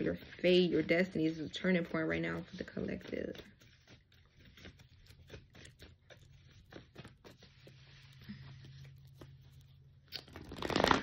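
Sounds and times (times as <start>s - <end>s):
cards being shuffled: 9.0s - 11.0s.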